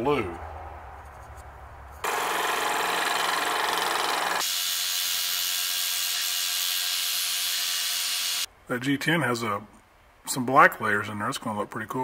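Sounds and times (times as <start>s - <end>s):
scroll saw cutting: 2.0s - 8.5s.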